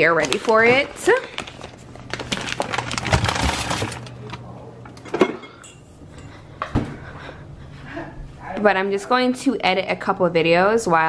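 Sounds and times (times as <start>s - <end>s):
paper bag rustling: 0.0s - 4.5s
glass bottles clinking: 5.0s - 6.3s.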